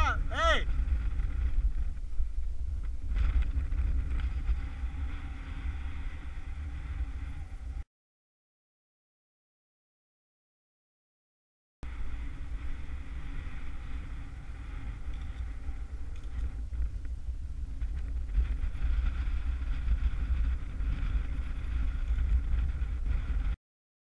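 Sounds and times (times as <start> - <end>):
wind buffeting microphone: 0.0 - 7.8, 11.8 - 23.6.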